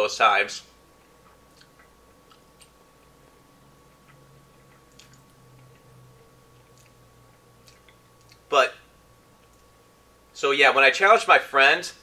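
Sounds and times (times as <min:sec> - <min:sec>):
electrical hum: 0:00.0 - 0:12.0
man chewing: 0:00.8 - 0:08.5.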